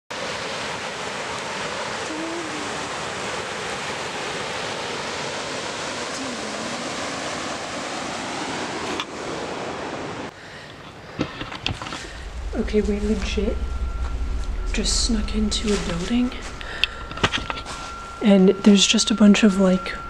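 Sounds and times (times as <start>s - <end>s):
river water rushing over rapids: 0.1s - 12.4s.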